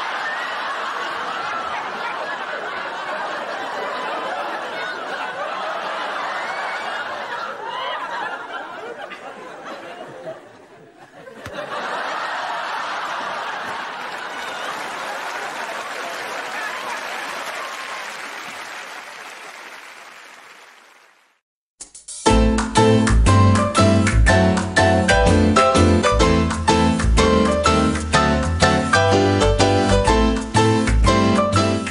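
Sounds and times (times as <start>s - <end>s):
studio audience laughing: 0.0s - 19.7s.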